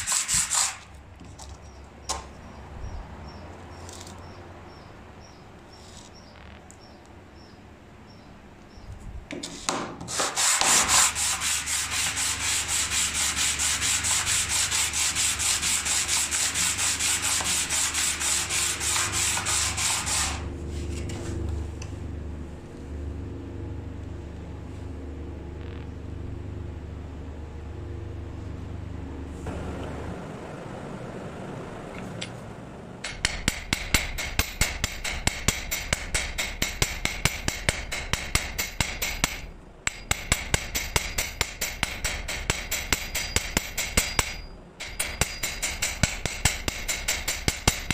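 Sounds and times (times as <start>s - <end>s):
metal scraping on sandpaper: 0.0s - 1.0s, 9.4s - 21.4s
steady low hum: 10.3s - 47.9s.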